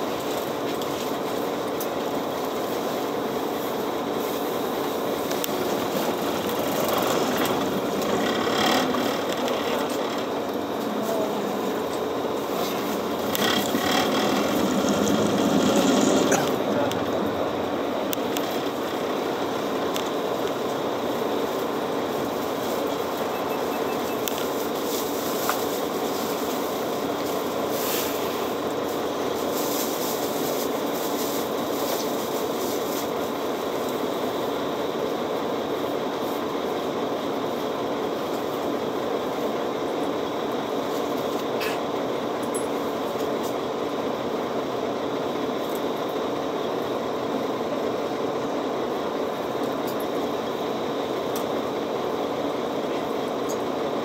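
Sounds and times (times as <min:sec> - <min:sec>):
bus cabin mechanical hum: 0:00.0 - 0:54.0
faint clicks and rattles: 0:05.3 - 0:10.9, 0:12.6 - 0:17.1.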